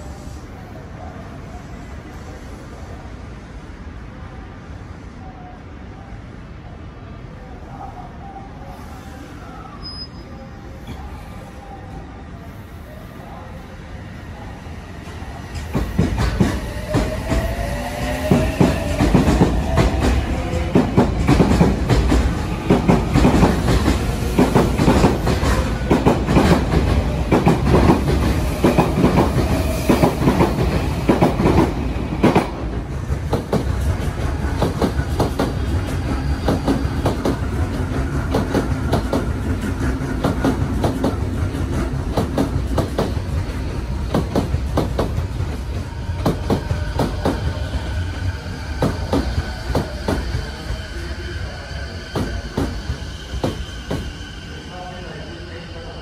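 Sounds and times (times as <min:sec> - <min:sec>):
train clacking over points: 0:15.0 - 0:54.2
electric train wheels clattering: 0:15.5 - 0:54.2.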